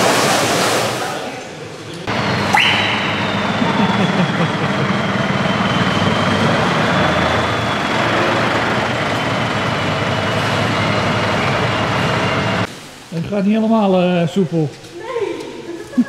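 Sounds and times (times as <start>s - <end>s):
diesel truck engine idling: 2.0s - 12.7s
thin high whine: 2.1s - 12.7s.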